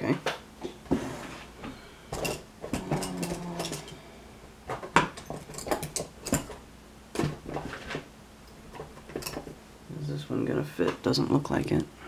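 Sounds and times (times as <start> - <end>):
metal tools clattering on table: 2.2 - 4.0, 5.1 - 6.6.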